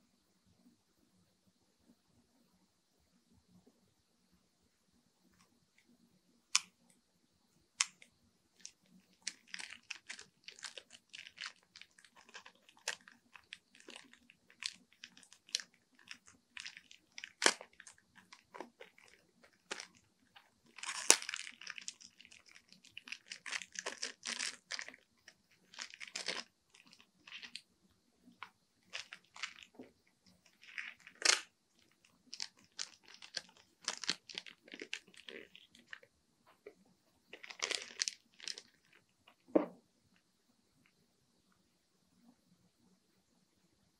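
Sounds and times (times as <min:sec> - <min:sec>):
plastic packaging crinkling: 0:08.6 - 0:27.6, 0:28.4 - 0:36.1, 0:37.3 - 0:39.0.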